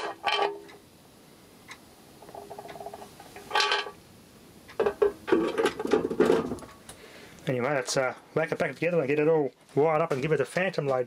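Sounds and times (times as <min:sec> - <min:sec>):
plastic cover knocks and clatter: 0:04.8 - 0:06.7.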